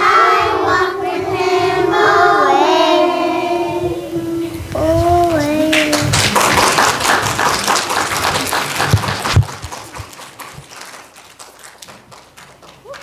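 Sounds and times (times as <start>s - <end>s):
children singing: 0.0s - 6.1s
audience applause: 5.7s - 13.0s.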